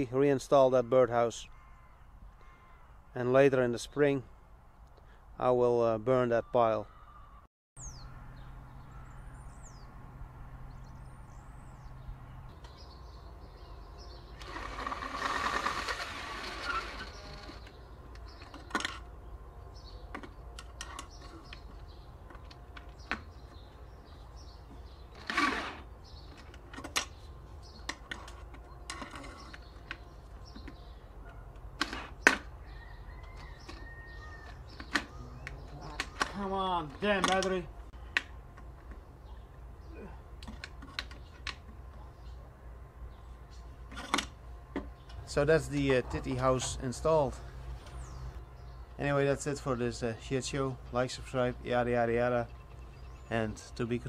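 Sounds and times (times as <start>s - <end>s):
bird chirps: 6.3s - 10.0s, 10.6s - 14.4s, 32.6s - 38.1s
cordless drill driving screws: 14.4s - 17.8s, 25.2s - 25.9s.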